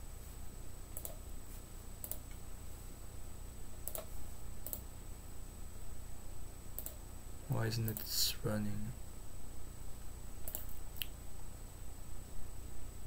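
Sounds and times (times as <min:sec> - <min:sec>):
faint electrical hum: 0:00.0 - 0:13.0
computer mouse clicks: 0:01.0 - 0:01.2, 0:02.0 - 0:02.4, 0:03.8 - 0:04.9, 0:06.8 - 0:07.0, 0:07.9 - 0:08.1, 0:10.4 - 0:11.2.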